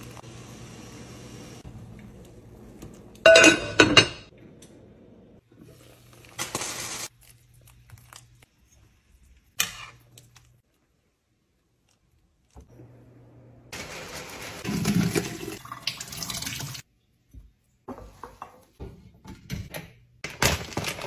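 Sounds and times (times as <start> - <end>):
metal utensils clinking on pot: 3.2 - 4.3.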